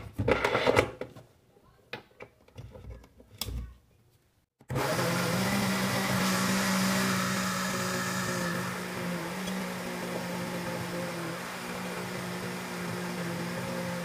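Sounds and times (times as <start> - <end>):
blender motor humming: 4.6 - 14.0.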